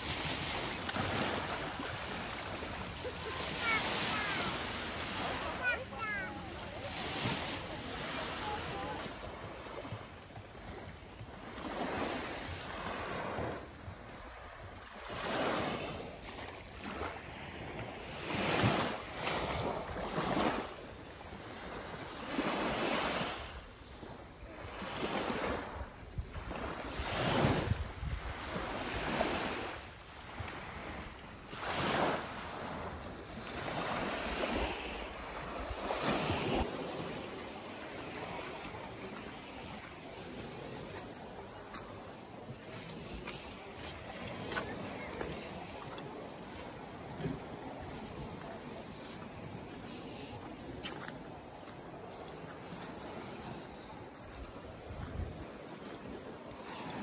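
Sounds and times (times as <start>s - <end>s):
small waves lapping on shore: 0.0s - 57.0s
wind on microphone: 25.6s - 29.8s, 52.6s - 57.0s.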